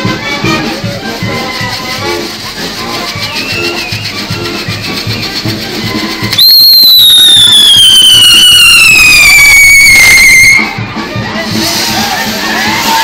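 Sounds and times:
crowd: 0.0 - 13.0
festive music: 0.0 - 13.0
whistling firework: 2.9 - 10.8.

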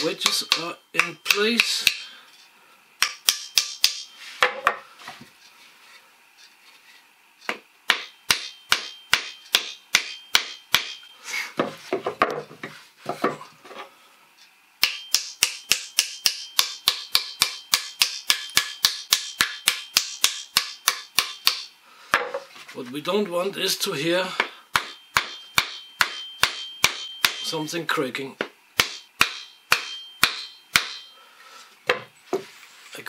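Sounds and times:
small hammer tapping wooden wedges: 0.0 - 2.1, 3.0 - 4.8, 14.8 - 22.4.

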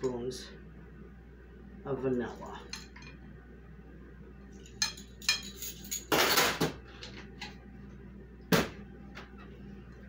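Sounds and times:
metal spoons clinking on glass bowl: 4.6 - 6.1
utensils clattering rattle: 4.6 - 7.2.

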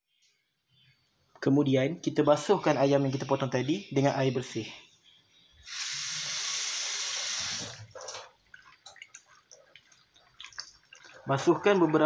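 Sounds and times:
water splashes and drips: 6.2 - 12.0.

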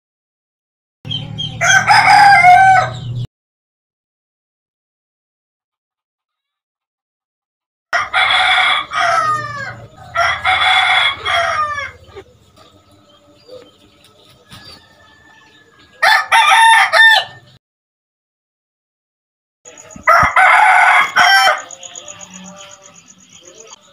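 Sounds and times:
rooster crowing: 1.4 - 3.2, 8.0 - 12.2, 14.4 - 17.6, 19.7 - 23.8.

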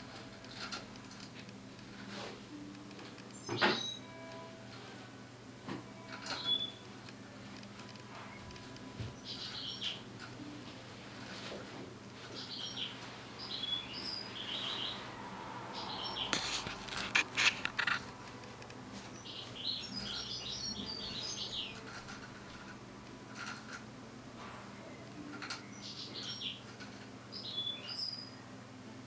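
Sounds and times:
goldfinch twittering: 9.2 - 10.0.

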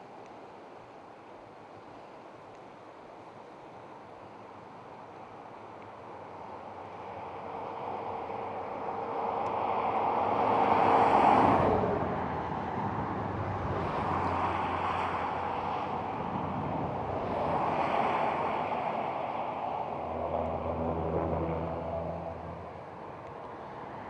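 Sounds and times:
vehicles passing by: 6.3 - 24.0.

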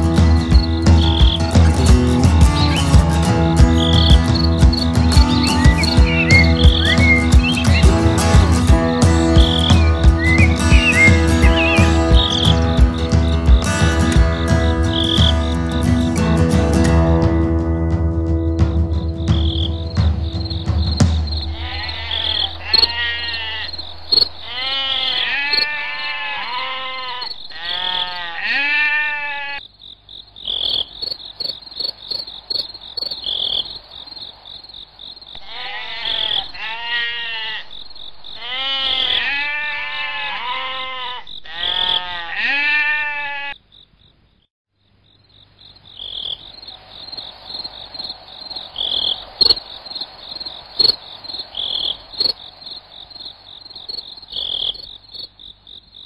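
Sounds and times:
crickets and insects chorus: 0.0 - 16.1, 18.3 - 28.5, 29.4 - 42.2, 45.0 - 56.0
frogs croaking: 0.0 - 16.1, 18.2 - 56.0.

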